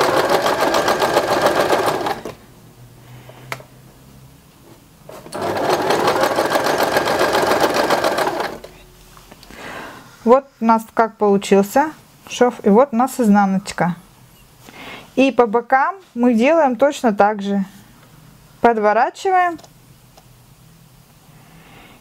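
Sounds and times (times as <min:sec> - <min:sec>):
sewing machine stitching: 0:00.0 - 0:02.4, 0:05.1 - 0:08.8.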